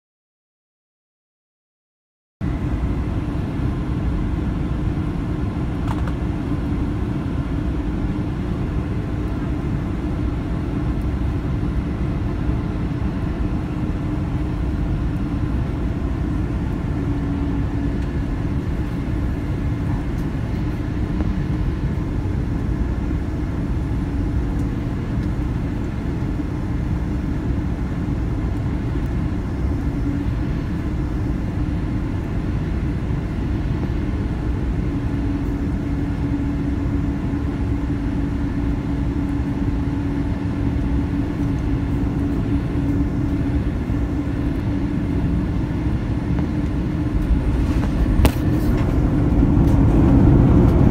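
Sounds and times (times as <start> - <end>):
jet engines rumbling: 2.4 - 50.9
steady hum: 2.4 - 50.9
rushing air: 46.2 - 50.9.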